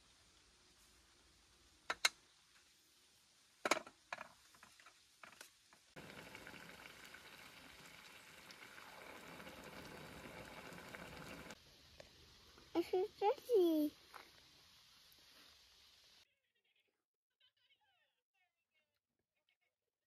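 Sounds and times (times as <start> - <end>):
soup simmering on stove hiss: 0.0 - 16.3
sharp clicks and knocks: 1.9 - 2.2.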